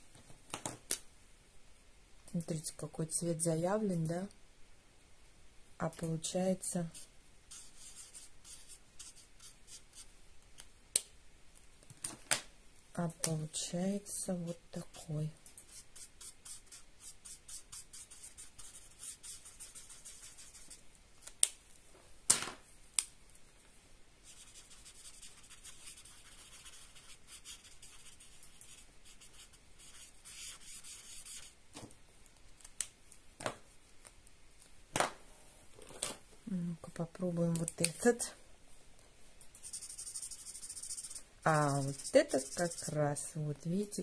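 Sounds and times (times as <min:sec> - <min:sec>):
marker rubbing on paper: 0:06.8 - 0:10.1, 0:15.6 - 0:20.8, 0:24.2 - 0:31.6, 0:39.6 - 0:43.1.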